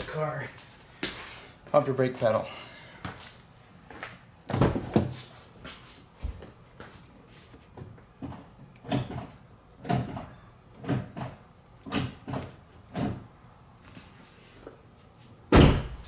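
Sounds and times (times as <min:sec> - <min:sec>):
loud thump: 0:15.5 - 0:16.0.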